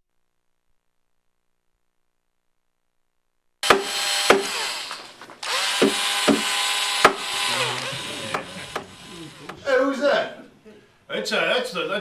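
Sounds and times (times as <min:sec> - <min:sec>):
sharp knocks: 0:03.6 - 0:09.6
power saw cutting: 0:03.6 - 0:09.7.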